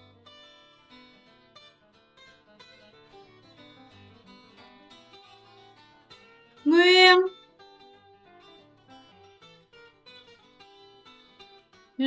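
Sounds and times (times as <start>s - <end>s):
strummed acoustic guitar: 0.0s - 12.0s
person speaking a word: 6.7s - 7.3s.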